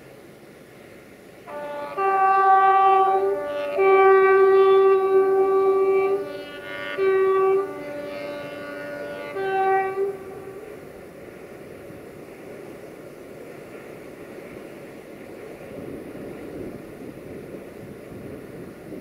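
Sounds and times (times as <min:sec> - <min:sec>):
locomotive air horn blasts: 0:01.4 - 0:11.1.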